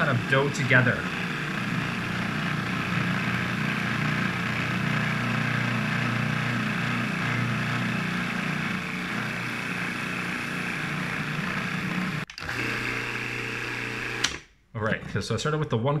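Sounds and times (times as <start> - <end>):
food processor motor running: 0.0 - 14.5.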